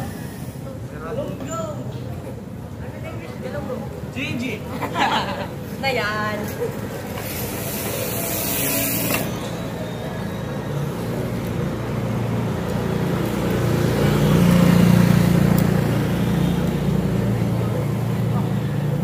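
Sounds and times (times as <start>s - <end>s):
hiss: 0.0s - 0.8s
vehicle engine passing: 7.3s - 19.0s.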